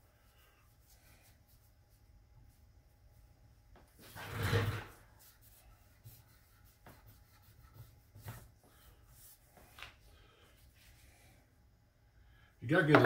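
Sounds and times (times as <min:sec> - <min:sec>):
hand rubbing wooden board: 0:04.0 - 0:10.0.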